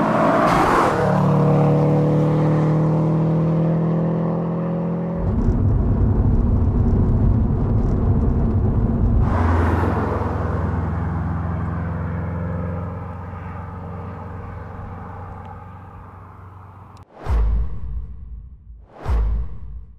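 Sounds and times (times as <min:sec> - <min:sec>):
car exhaust driving away: 0:05.1 - 0:17.0.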